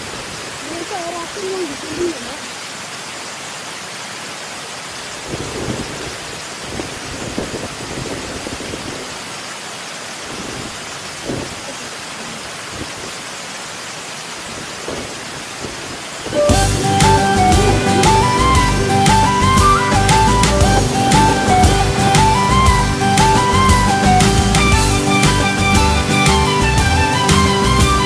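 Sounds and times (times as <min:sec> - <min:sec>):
wind buffeting microphone: 0:05.3 - 0:09.2.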